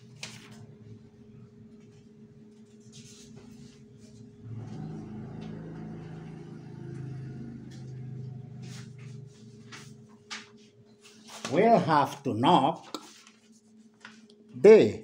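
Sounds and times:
vehicle engine passing: 4.4 - 10.0.

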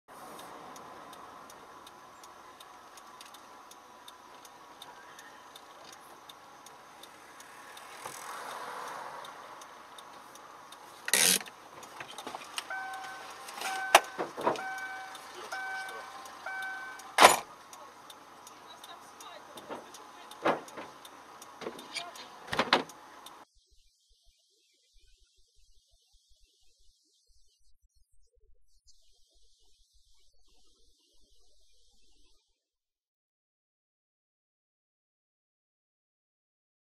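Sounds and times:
light ticking: 0.1 - 23.4
electronic warning chime beeping: 12.6 - 17.4.

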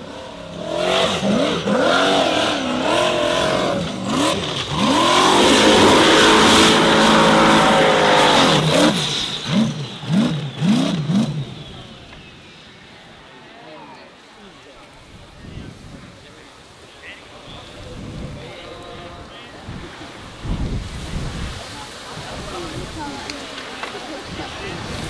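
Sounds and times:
race buggy engine revving: 0.0 - 13.3.

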